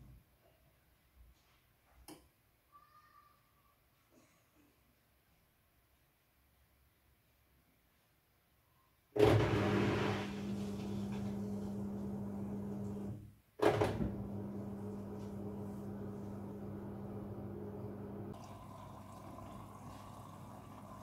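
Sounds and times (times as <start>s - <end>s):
washing machine drain pump humming: 9.2s - 21.0s.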